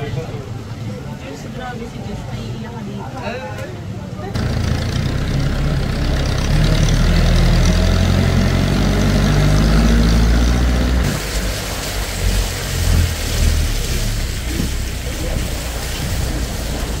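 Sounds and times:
vehicle engine drone: 4.3s - 17.0s
rough rumble with jolts: 4.4s - 17.0s.

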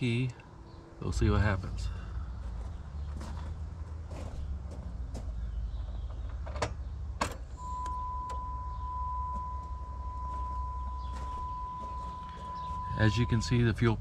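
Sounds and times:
low steady hum: 0.0s - 14.0s
high electronic tone: 7.6s - 13.7s.

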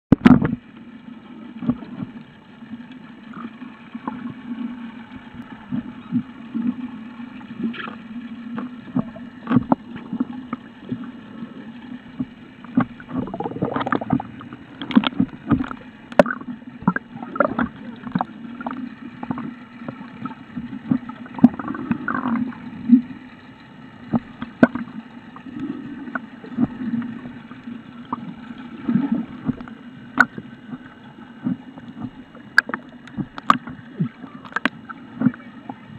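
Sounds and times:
low underwater rumble: 0.2s - 35.9s
sharp clicks and knocks: 29.4s - 33.8s.

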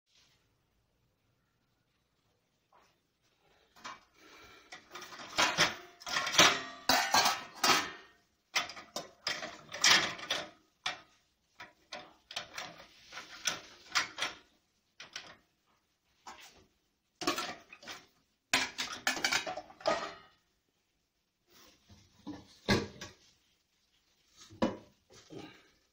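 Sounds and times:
plates and pots clattering in dishwasher: 3.8s - 15.4s, 17.2s - 20.4s, 22.0s - 23.3s.

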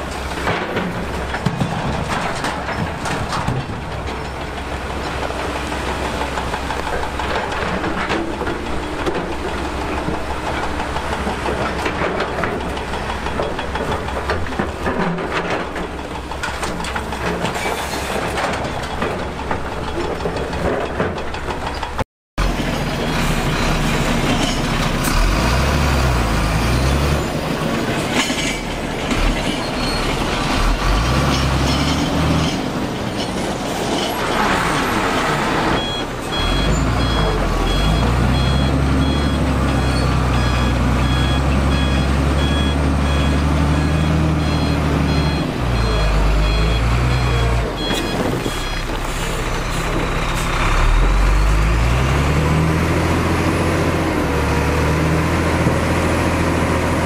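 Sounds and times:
diesel machinery engine running: 0.0s - 57.0s
reversing alarm beeping: 35.8s - 50.0s.

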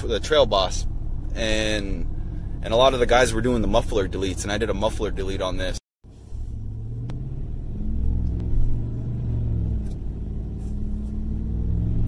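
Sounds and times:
truck engine accelerating: 6.0s - 12.0s.

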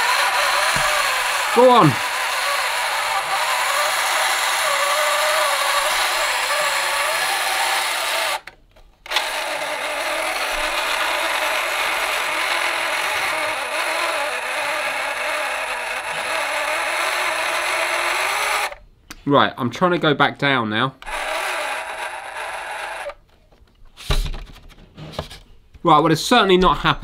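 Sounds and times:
small electric motor whirring: 0.0s - 18.8s, 21.0s - 23.2s.

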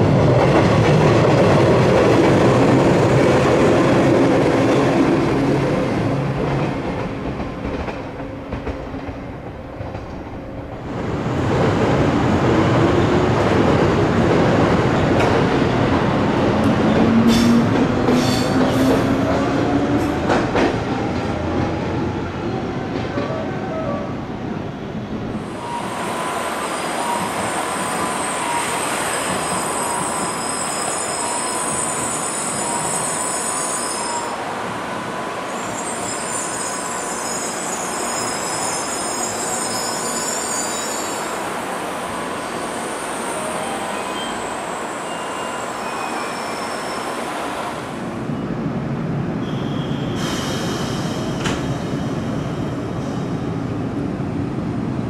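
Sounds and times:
train rumbling along rails: 0.0s - 55.0s
train wheels squealing: 25.4s - 34.5s, 35.5s - 41.5s, 42.1s - 47.5s, 49.4s - 53.4s.

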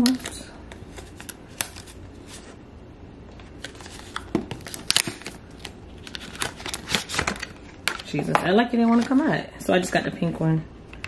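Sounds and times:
paper rustling: 3.6s - 8.0s.

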